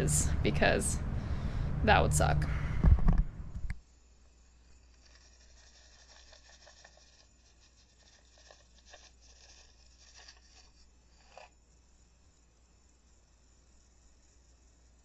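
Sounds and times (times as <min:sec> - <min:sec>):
soft crackles: 0:04.7 - 0:11.6.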